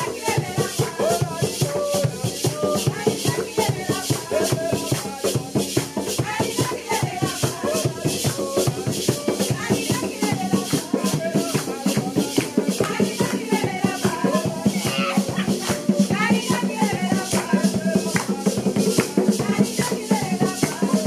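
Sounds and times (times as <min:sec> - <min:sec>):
drums and shakers beat: 0:00.0 - 0:21.0
voices singing over music: 0:00.0 - 0:21.0.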